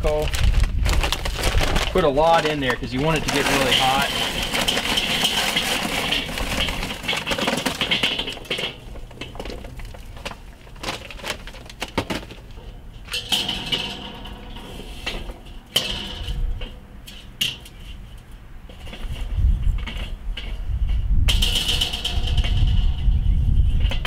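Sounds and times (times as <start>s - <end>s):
charcoal pouring into metal bowl: 0.0s - 11.8s
charcoal clinking: 0.0s - 18.3s.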